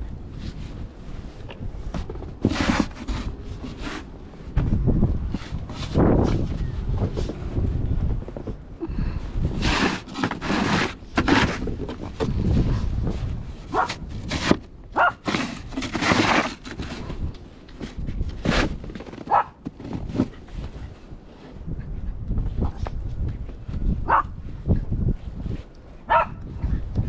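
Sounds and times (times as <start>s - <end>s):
snow shovel scraping wooden deck: 2.0s - 4.2s, 9.4s - 13.1s, 13.7s - 20.8s.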